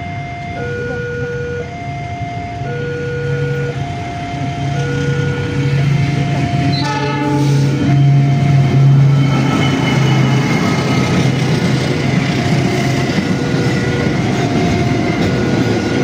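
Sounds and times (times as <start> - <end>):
freight train rumble: 0.0 - 16.0
level crossing two-tone alarm: 0.0 - 16.0
train horn blast: 4.6 - 9.3.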